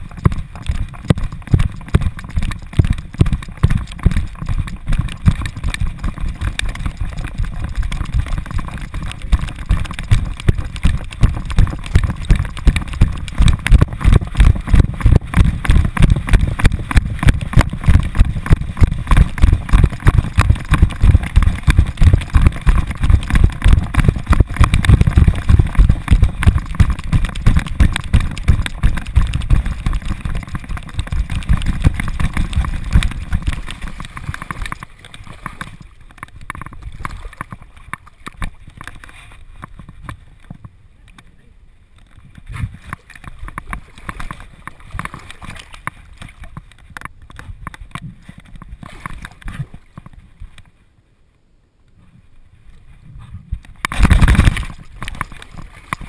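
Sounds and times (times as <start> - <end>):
rhythmic thumps of running strides: 0.0 - 34.9
scattered rustling: 0.0 - 40.1, 53.7 - 56.0.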